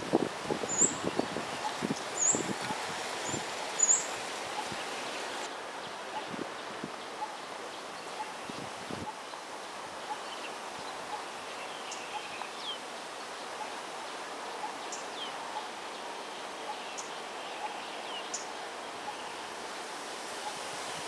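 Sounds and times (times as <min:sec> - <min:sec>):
outdoor park ambience hiss: 0:00.0 - 0:21.0
small birds chirping: 0:00.5 - 0:06.0.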